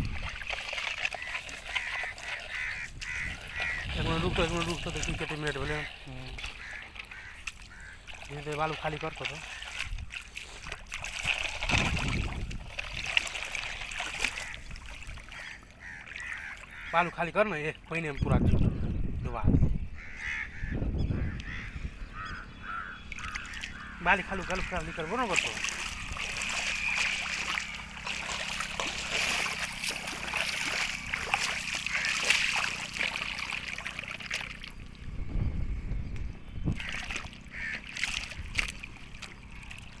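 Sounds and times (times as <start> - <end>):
water sloshing and splashing: 0.0 - 18.8, 22.6 - 35.2, 36.6 - 40.0.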